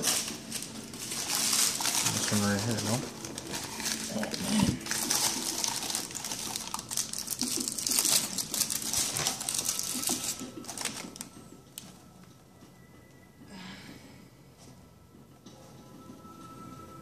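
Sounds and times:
packaging rustling and crinkling: 0:00.0 - 0:12.4.

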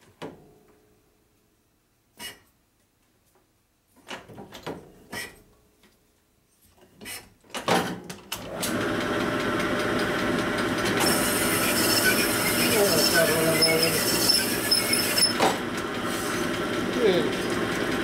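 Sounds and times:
honing machine grinding: 0:08.5 - 0:18.0.

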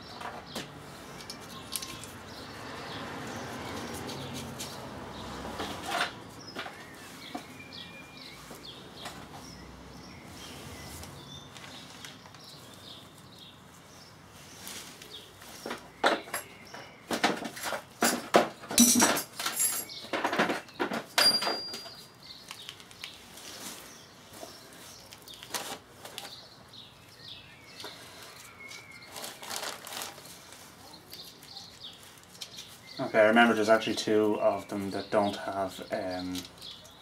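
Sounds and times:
small steel parts clinking: 0:18.0 - 0:20.6
short metallic rings: 0:21.2 - 0:22.0
plastic sheeting rustling: 0:22.4 - 0:26.4, 0:28.1 - 0:32.9.

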